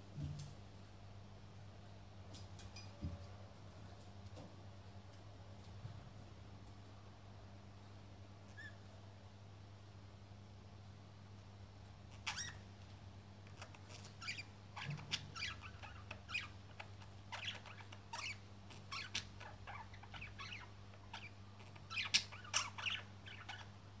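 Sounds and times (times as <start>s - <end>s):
budgerigars chirping and chattering: 12.1s - 12.6s, 13.5s - 23.8s.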